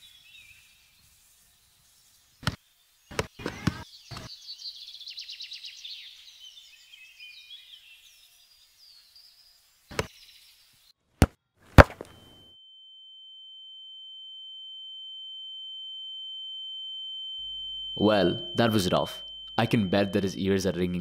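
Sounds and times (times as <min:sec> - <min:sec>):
birds chirping faintly: 0:00.0 - 0:11.0
high-pitched ringing tone: 0:12.4 - 0:21.0.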